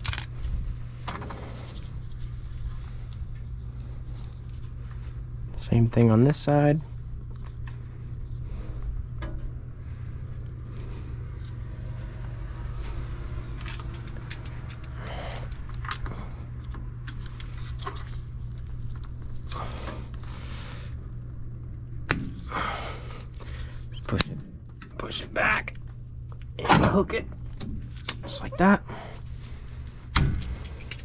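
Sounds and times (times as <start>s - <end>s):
steady low hum: 0.0s - 31.0s
metal brake hardware clinking: 13.6s - 16.1s.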